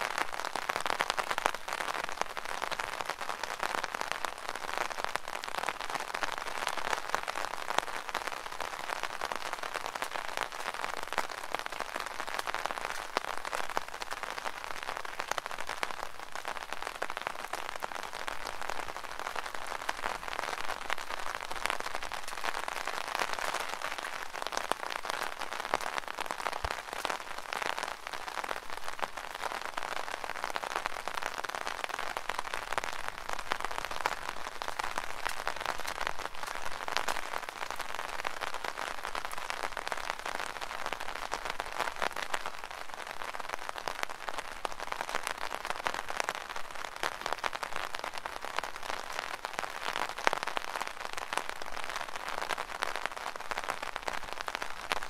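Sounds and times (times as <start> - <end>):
rain pattering on an umbrella: 0.0 - 55.0.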